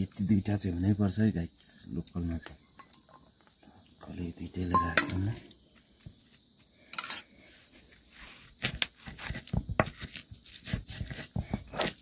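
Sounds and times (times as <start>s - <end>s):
stone crushing garlic: 8.6s - 12.0s.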